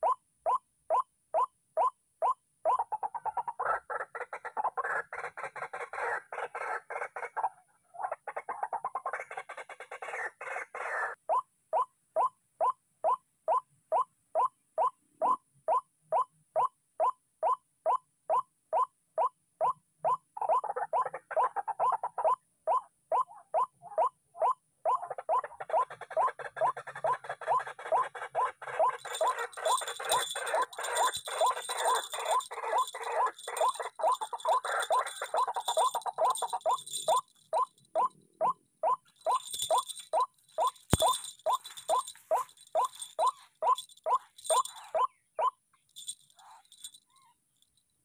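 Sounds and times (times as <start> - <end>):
bird harsh croaking calls: 2.7 - 12.3, 19.6 - 47.4
waterhens calling: 28.1 - 38.2, 38.9 - 45.1.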